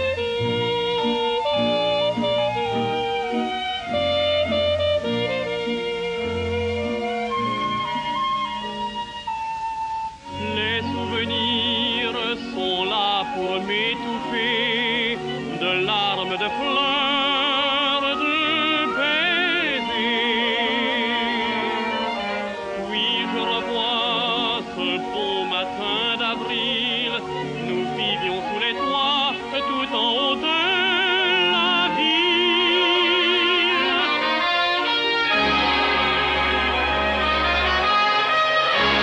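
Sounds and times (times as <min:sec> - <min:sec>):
orchestral music: 0:00.0 - 0:39.0.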